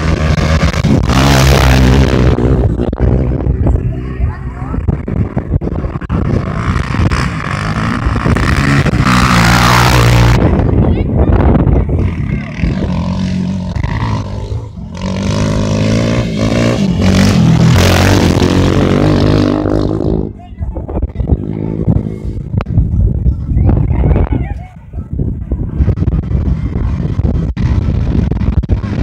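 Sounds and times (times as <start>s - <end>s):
off-road engines revving: 0.0s - 23.1s.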